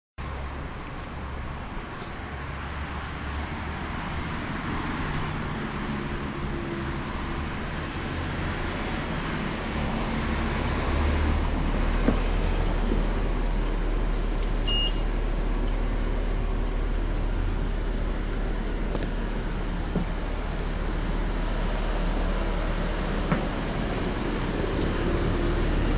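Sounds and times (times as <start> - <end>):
bus engine and road rumble: 0.2 - 25.9
short high beep: 14.7 - 15.1.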